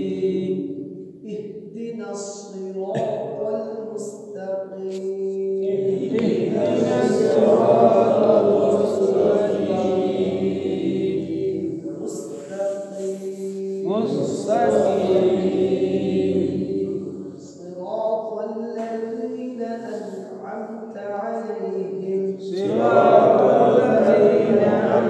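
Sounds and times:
voices chanting: 0:00.0 - 0:00.6, 0:05.6 - 0:12.4, 0:13.8 - 0:17.5, 0:22.5 - 0:25.0.

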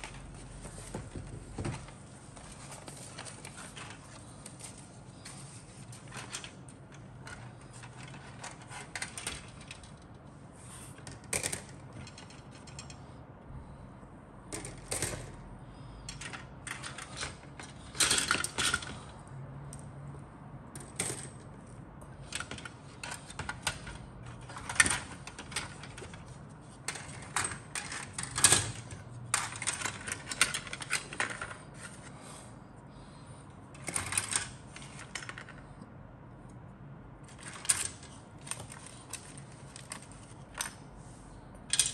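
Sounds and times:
plastic parts clicking and clattering: 0:00.0 - 0:10.1, 0:10.9 - 0:13.0, 0:14.5 - 0:15.4, 0:16.1 - 0:19.1, 0:20.8 - 0:21.6, 0:22.2 - 0:32.1, 0:33.7 - 0:35.7, 0:37.3 - 0:40.8, 0:41.7 - 0:41.9.

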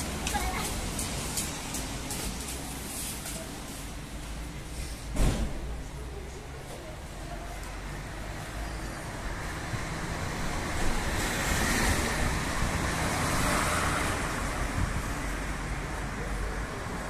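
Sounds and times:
vehicle passing: 0:08.0 - 0:17.0.

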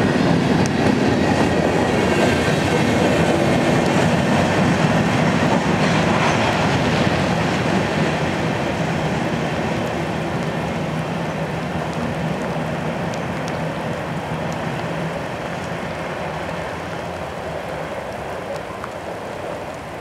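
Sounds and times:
steady rain falling: 0:00.0 - 0:20.0
train wheels rumbling on rails: 0:00.0 - 0:20.0.

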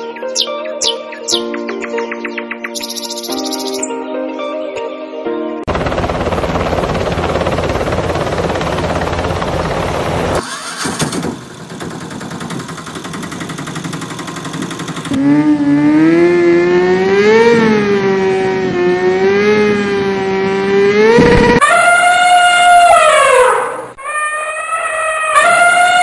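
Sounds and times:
rapid buzzing engine sound: 0:05.7 - 0:21.6
loud car engine revving: 0:10.3 - 0:21.6.

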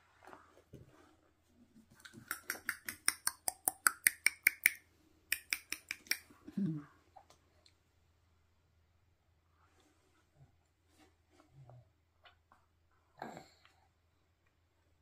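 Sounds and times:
rapid tongue clicking: 0:02.0 - 0:06.6.

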